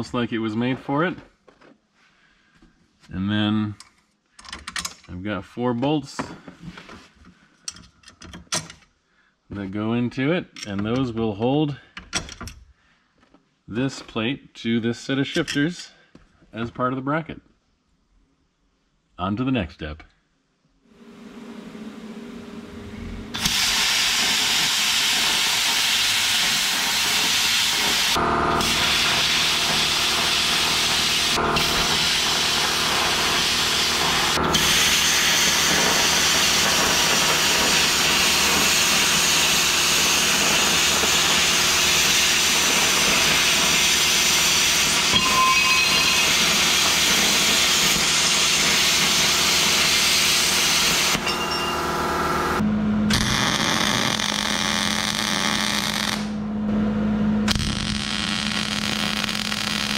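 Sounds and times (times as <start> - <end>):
plasma cutter hissing: 23.3 - 51.2.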